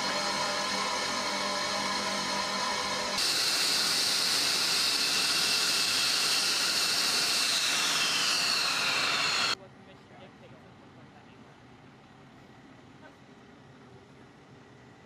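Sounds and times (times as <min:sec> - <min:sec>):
jet engine hiss and whine: 0:00.0 - 0:09.6
machine hum: 0:00.0 - 0:09.6.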